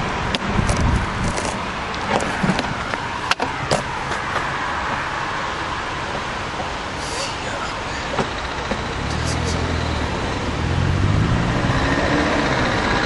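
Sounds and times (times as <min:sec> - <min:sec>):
bicycle rolling noise: 0:00.2 - 0:04.6
bicycle clicks and rattles: 0:00.3 - 0:02.6.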